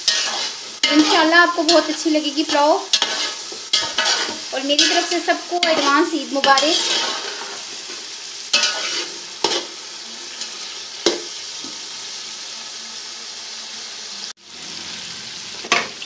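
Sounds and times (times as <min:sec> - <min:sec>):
food frying in a pot: 0:00.0 - 0:16.0
spoon clinking and scraping: 0:00.1 - 0:09.7.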